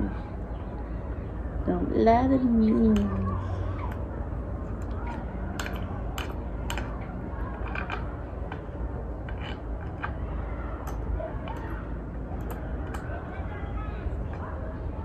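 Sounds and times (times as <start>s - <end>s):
clicks of hardware being tightened: 5.6s - 10.2s.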